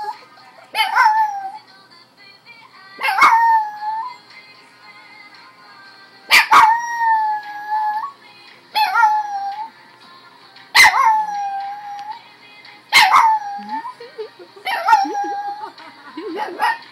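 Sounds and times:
dog howling: 0.0s - 1.6s, 3.0s - 4.1s, 6.4s - 8.2s, 8.8s - 9.7s, 10.8s - 12.2s, 13.0s - 14.0s, 14.7s - 15.7s
music: 0.0s - 16.9s.

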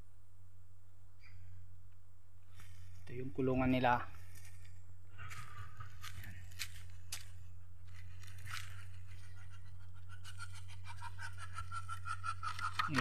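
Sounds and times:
steady low hum: 0.0s - 13.0s
footsteps on dry leaves: 4.1s - 4.7s, 5.3s - 9.0s.

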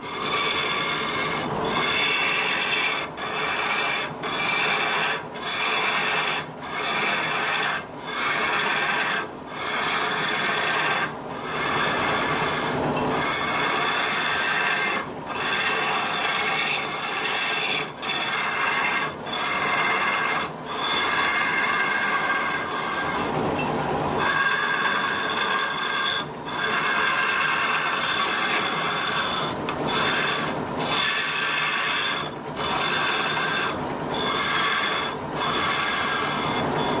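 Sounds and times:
lathe chisel rasping scrape: 0.0s - 23.4s, 24.2s - 37.0s
lathe whining: 0.0s - 37.0s.

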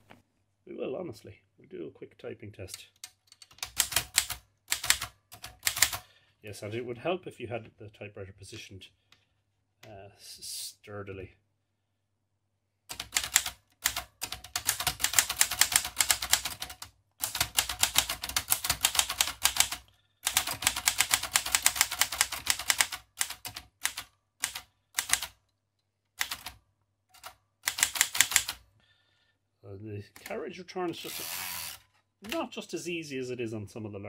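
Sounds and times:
manual typewriter keystrokes: 3.0s - 6.0s, 12.9s - 25.4s, 26.2s - 26.6s, 27.2s - 28.6s.

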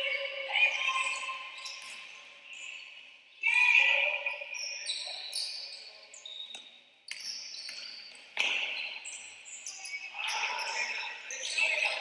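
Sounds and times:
shoe squeaks and knocks: 4.6s - 12.0s.

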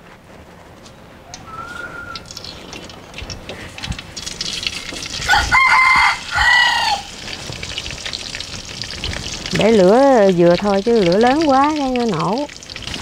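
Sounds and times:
rooster crowing: 1.2s - 2.3s, 5.2s - 7.1s
pork deep-frying in oil: 1.4s - 13.0s.

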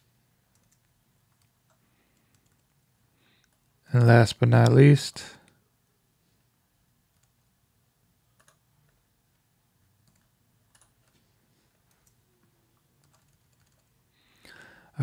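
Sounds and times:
computer mouse clicks: 0.5s - 2.8s, 3.4s - 3.8s, 7.1s - 7.4s, 8.4s - 9.0s, 10.0s - 12.2s, 13.0s - 13.9s.

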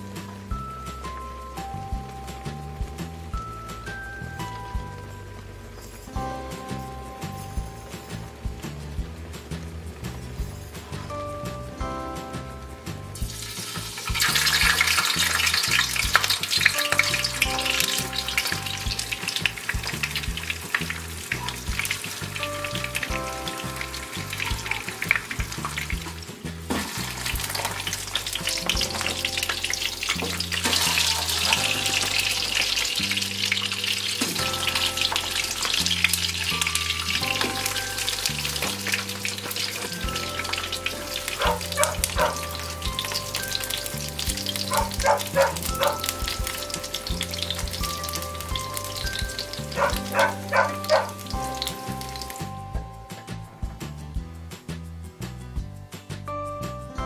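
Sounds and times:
oil sizzling in a frying pan: 12.4s - 52.7s.

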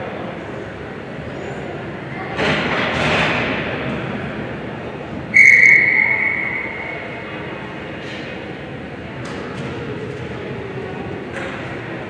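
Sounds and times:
referee whistle blast: 5.3s - 7.3s.

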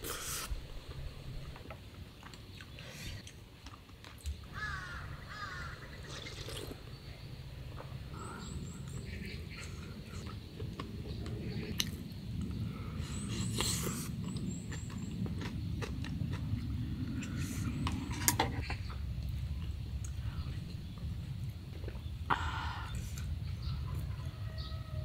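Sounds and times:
low steady rumble: 0.0s - 3.6s, 4.4s - 25.0s
eating noises: 6.0s - 6.9s, 8.8s - 20.8s.

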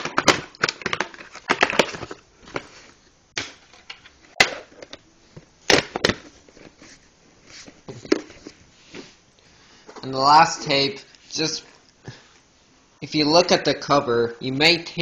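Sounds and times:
plastic case rustling: 0.0s - 3.0s, 3.6s - 9.1s.

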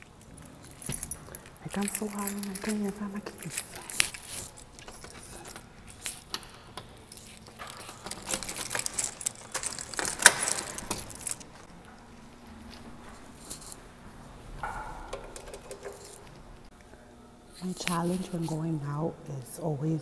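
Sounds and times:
keys jangling: 0.0s - 11.7s, 14.6s - 16.4s.

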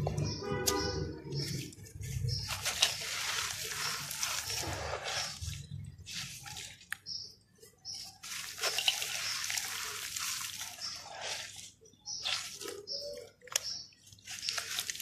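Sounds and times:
wet dirt splashing into water: 2.4s - 7.1s, 8.2s - 15.0s.

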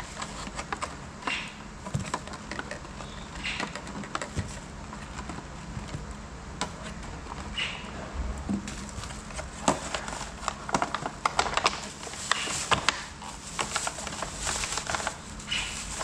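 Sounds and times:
plastic bag rustling: 0.0s - 1.2s, 8.5s - 16.0s
steady low hum: 0.0s - 16.0s.

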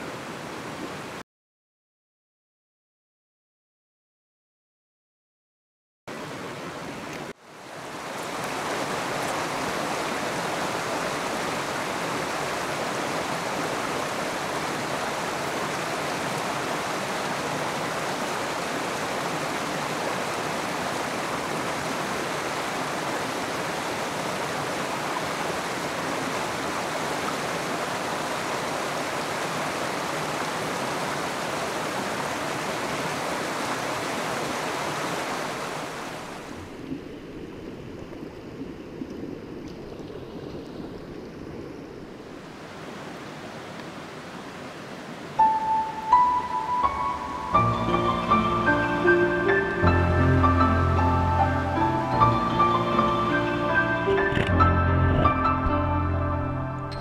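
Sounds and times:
river rushing over rocks: 6.1s - 36.8s, 42.0s - 52.2s.

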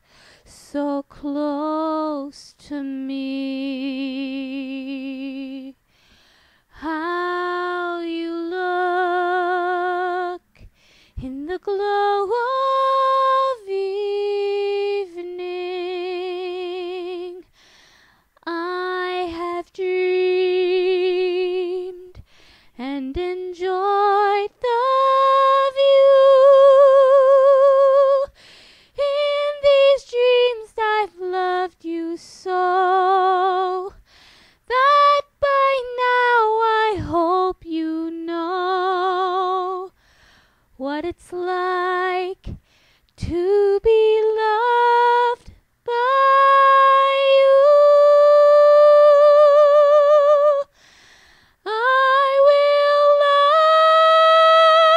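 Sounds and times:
singer breathing: 0.0s - 0.5s, 5.8s - 6.7s, 10.7s - 11.2s, 17.5s - 18.3s, 22.2s - 22.8s, 28.3s - 29.0s, 34.0s - 34.6s, 40.0s - 40.7s, 42.6s - 43.1s, 50.7s - 51.6s
woman singing a cappella: 0.0s - 51.0s, 51.6s - 54.9s.

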